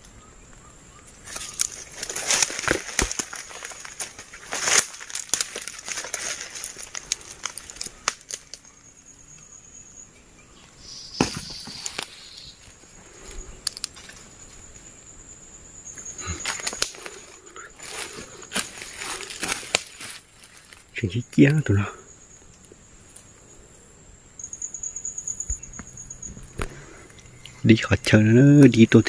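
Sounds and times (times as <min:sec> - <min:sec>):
twig snapping: 0:01.2 - 0:08.7, 0:13.6 - 0:14.2, 0:16.4 - 0:20.8
leaf litter rustling and crackling: 0:01.2 - 0:08.8, 0:16.1 - 0:21.2.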